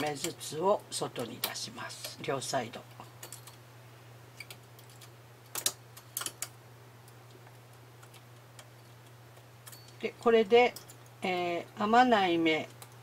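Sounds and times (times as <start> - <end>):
faint steady hum: 0.0 - 13.0
knitting machine needles clicking: 4.4 - 10.1.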